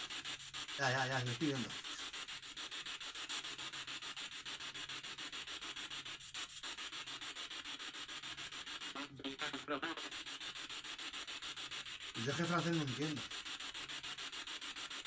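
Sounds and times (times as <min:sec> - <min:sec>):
choppy radio static sweep: 0:09.0 - 0:10.2, 0:12.2 - 0:13.2.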